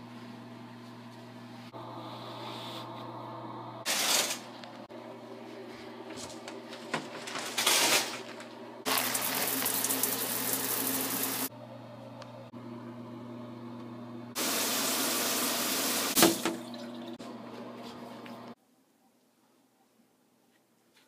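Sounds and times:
shower spray hissing: 14.4s - 16.3s.

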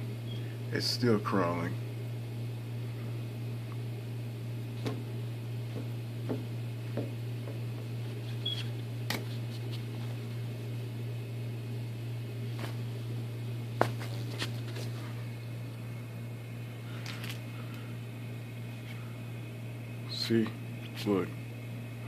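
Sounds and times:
low room hum: 0.0s - 22.0s.

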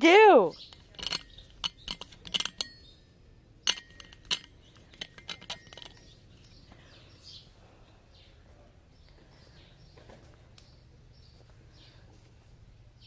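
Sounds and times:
metal tin clicking and clinking: 0.6s - 2.9s, 3.6s - 6.2s.

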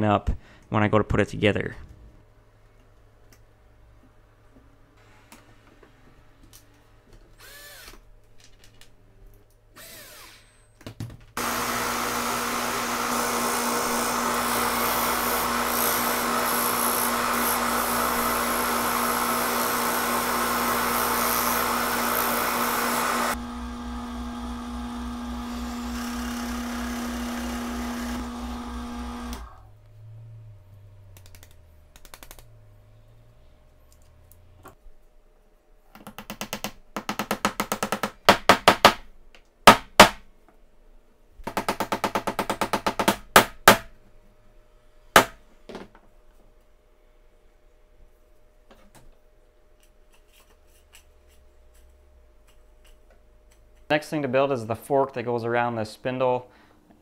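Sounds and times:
electric motor hum: 11.4s - 30.3s.

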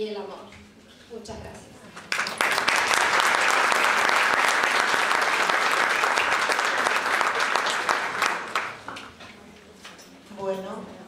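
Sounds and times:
audience applauding: 2.0s - 9.1s.

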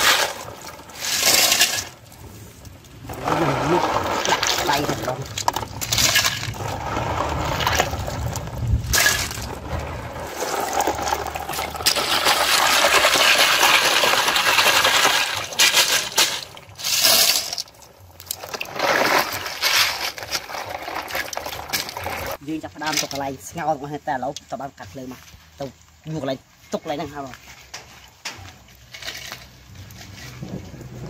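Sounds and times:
water sloshing and splashing: 0.0s - 23.2s.

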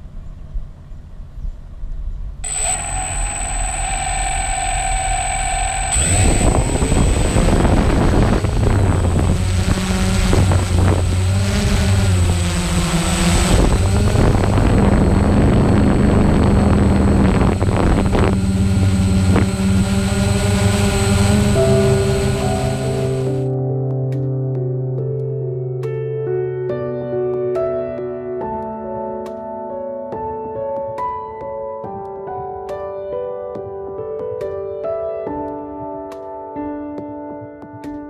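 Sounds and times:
drone motors and propellers: 2.4s - 23.5s
wind buffeting microphone: 5.4s - 12.5s, 13.3s - 22.3s.

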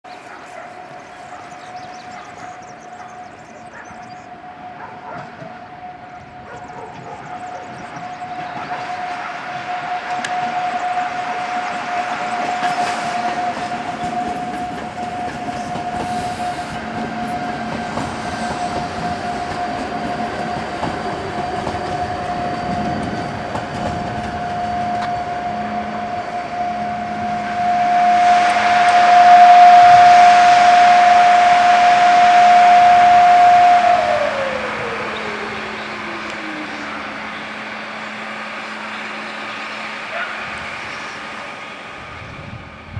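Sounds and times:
electric train motor whine: 0.3s - 42.9s
loud hissing rush: 15.6s - 19.2s.

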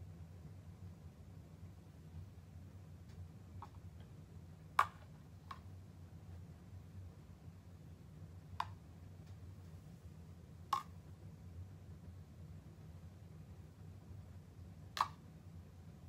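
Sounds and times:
low steady hum: 0.0s - 16.0s
plastic spoon tapping bowls: 4.8s - 5.7s, 8.6s - 8.8s, 10.7s - 11.0s.

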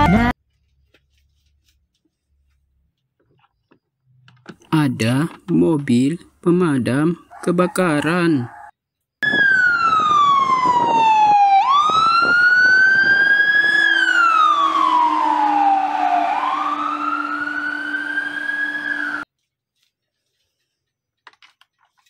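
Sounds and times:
fire engine siren wailing: 9.2s - 19.3s.

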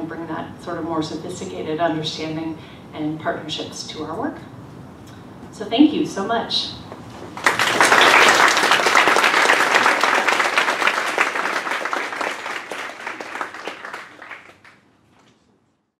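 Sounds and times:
audience applauding: 7.4s - 14.8s.

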